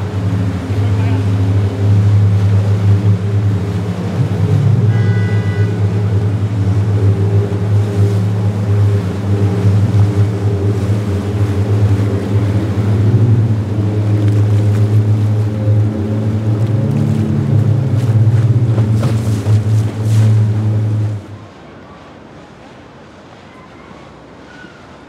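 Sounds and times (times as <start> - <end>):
jet ski engine drone: 0.0 - 25.0
water churning and splashing: 0.0 - 25.0
high-pitched tone: 4.8 - 6.1.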